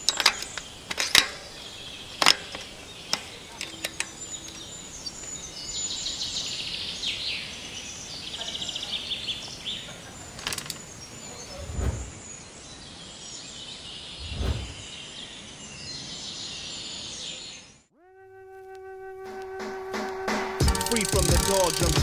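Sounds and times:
steady background hiss: 0.0s - 14.2s
rapid high ticking: 20.6s - 22.0s
sharp metallic clicks: 20.6s - 22.0s.

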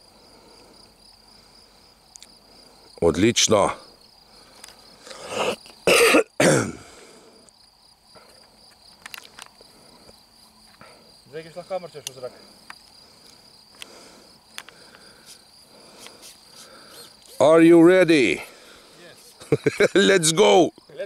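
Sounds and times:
crickets chirping: 0.0s - 21.0s
person speaking: 19.8s - 20.7s.

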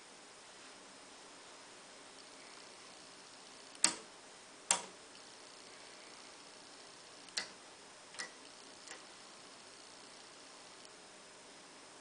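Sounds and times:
faint steady hiss: 0.0s - 12.0s
rotary switch clicking: 3.7s - 4.1s, 4.7s - 5.3s, 7.2s - 9.1s.

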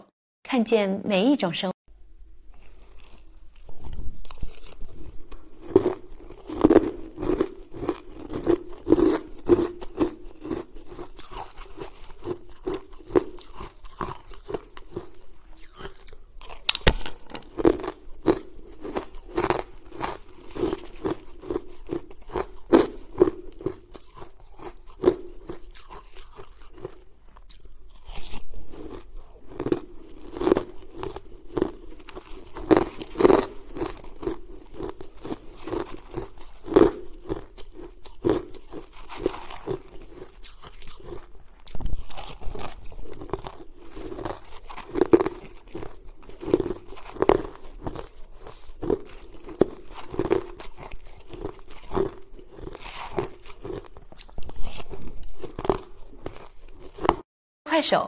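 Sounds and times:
chewing crunchy ice: 2.5s - 57.3s.

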